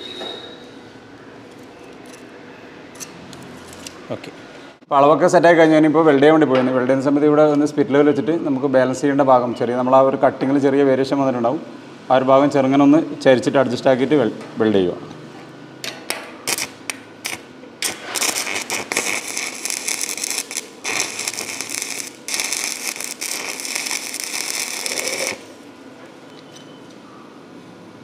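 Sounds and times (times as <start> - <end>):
welding arc crackling: 16.4 - 25.7.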